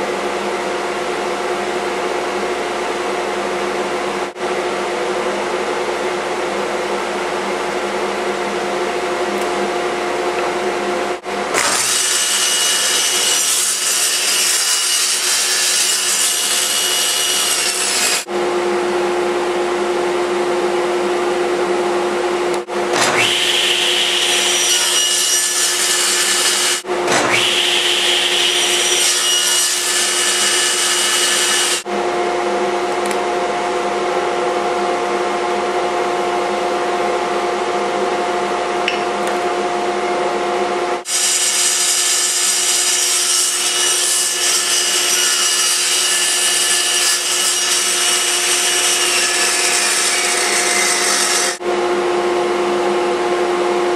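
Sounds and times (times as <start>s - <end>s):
table saw motor hum: 8.4s - 33.8s, 41.0s - 53.9s
saw blade cutting wood: 11.5s - 18.3s, 22.9s - 31.8s, 41.0s - 51.6s.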